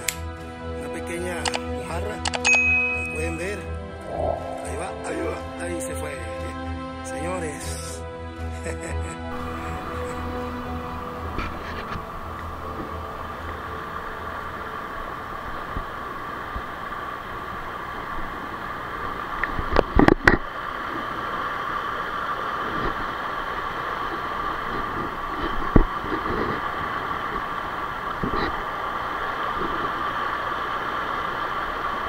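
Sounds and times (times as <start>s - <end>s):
river water rushing over rocks: 15.6s - 32.0s.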